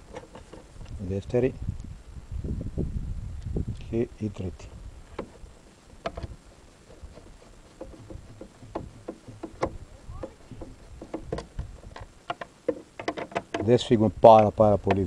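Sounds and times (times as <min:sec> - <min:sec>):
clicks of metal on plastic: 0:07.8 - 0:14.0.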